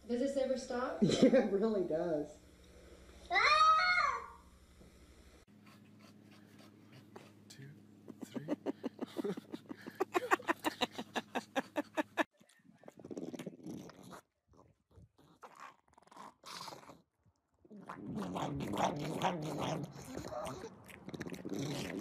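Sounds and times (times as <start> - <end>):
dog crunching and chewing vegetable: 12.3 - 22.0.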